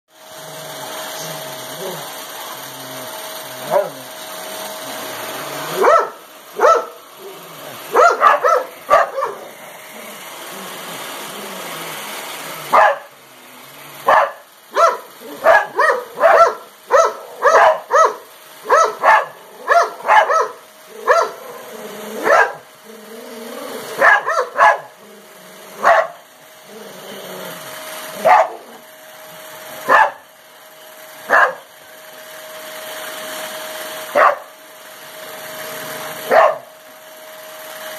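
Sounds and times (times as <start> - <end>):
vacuum cleaner motor humming: 0.1 - 37.9
dog barking: 5.7 - 7.0, 7.9 - 9.5, 12.7 - 13.1, 14.0 - 21.5, 22.2 - 22.6, 24.0 - 24.9, 25.8 - 26.2, 28.2 - 28.6, 29.9 - 30.2, 31.3 - 31.6, 34.2 - 34.5, 36.3 - 36.7.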